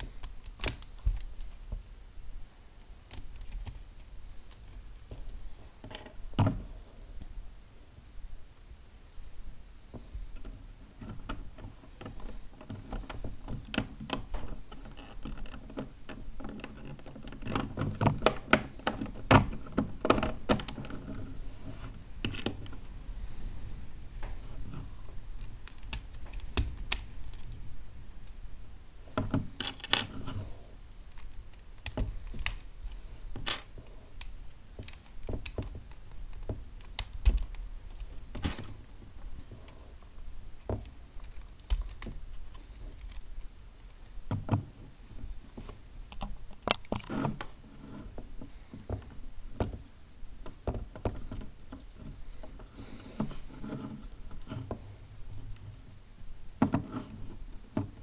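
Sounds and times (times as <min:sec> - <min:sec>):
plastic parts clicking: 0:00.0 - 0:01.9, 0:02.8 - 0:05.2, 0:10.4 - 0:22.8, 0:24.7 - 0:27.6, 0:29.2 - 0:30.5, 0:31.1 - 0:38.8, 0:40.6 - 0:44.7, 0:46.1 - 0:47.5.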